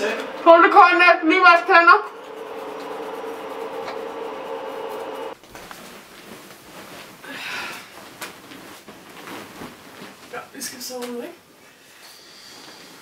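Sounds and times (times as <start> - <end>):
steady hum: 0.0 - 6.3
bedding rustling: 5.3 - 13.0.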